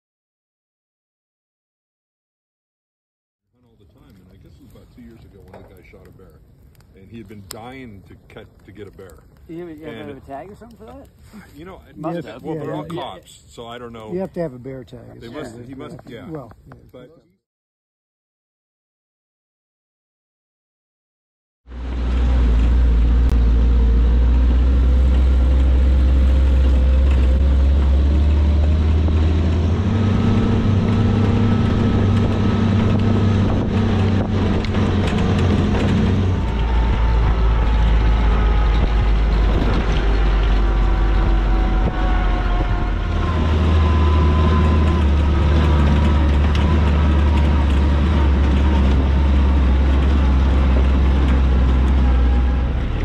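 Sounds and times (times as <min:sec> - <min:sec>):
jeep engine rumbling: 0:21.7 - 0:53.0.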